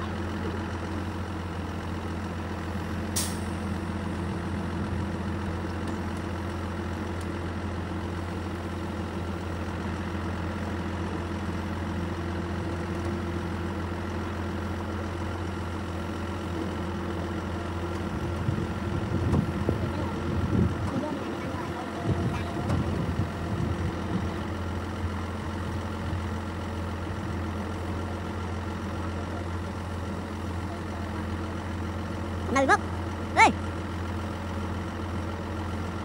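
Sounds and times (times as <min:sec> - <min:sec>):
diesel truck engine idling: 0:00.0 - 0:36.0.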